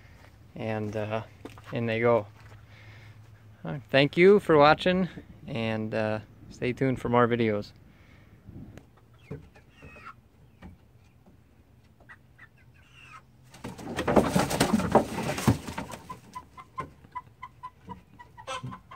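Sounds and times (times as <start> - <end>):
hens clucking: 8.4 - 18.9
wings flapping and scrabbling: 13.5 - 16.9.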